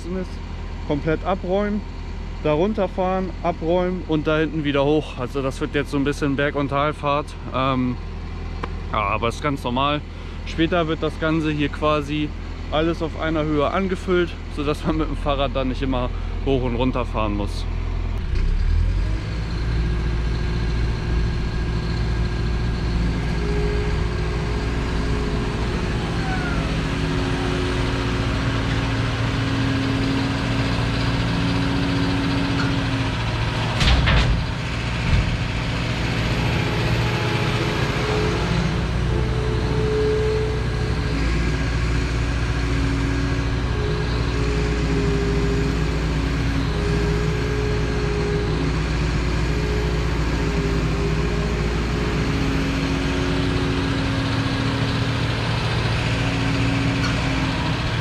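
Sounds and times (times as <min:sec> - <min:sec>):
excavator engine and hydraulics whining: 0:00.0 - 0:58.0.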